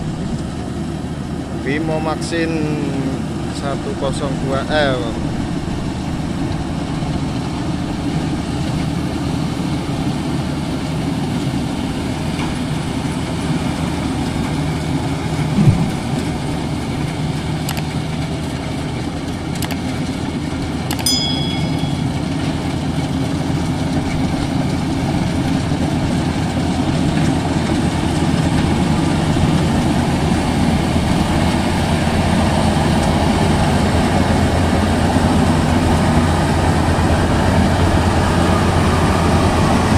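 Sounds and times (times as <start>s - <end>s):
combine harvester running: 0.0s - 39.9s
brief thump: 15.5s - 16.1s
sharp clicks: 19.6s - 19.9s
short high chime: 20.9s - 22.5s.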